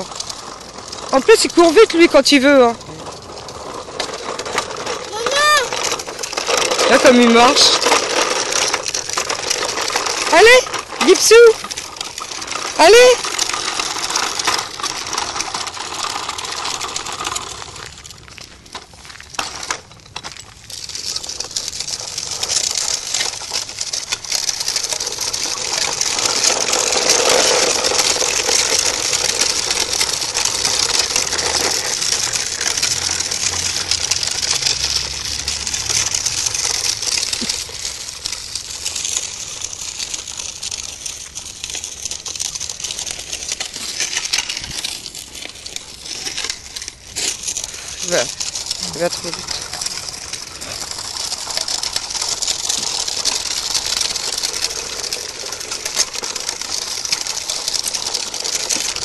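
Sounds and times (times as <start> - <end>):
footsteps crunching on gravel: 16.4 - 22.0
crackly hiss: 20.6 - 59.0.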